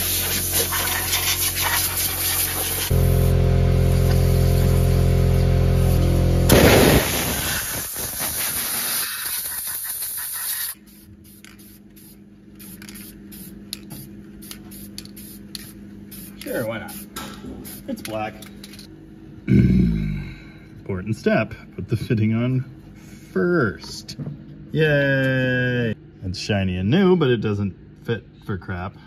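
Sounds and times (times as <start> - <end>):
aerosol spray can hissing: 0.0 - 3.0, 6.8 - 18.0
steady low hum: 0.0 - 29.0.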